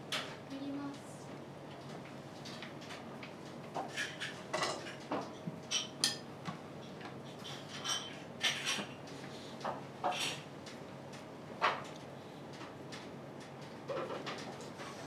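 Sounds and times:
tableware clinking: 4.0s - 5.0s.

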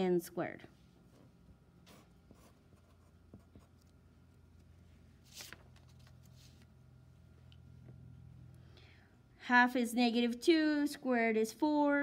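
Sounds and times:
low steady hum: 0.0s - 12.0s
pencil scratching on paper: 1.9s - 3.9s.

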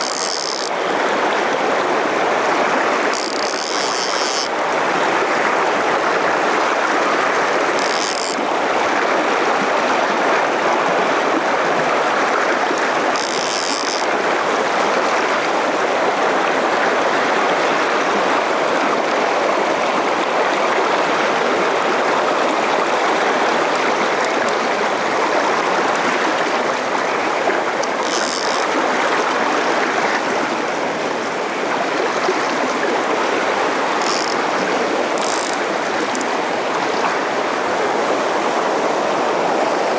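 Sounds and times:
river rushing over stones: 0.0s - 39.9s.

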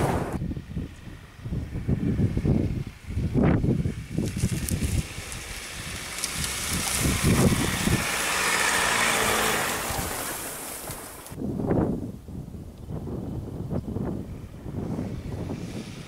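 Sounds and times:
wind on microphone: 0.0s - 16.0s
pickup truck driving past: 3.9s - 11.4s.

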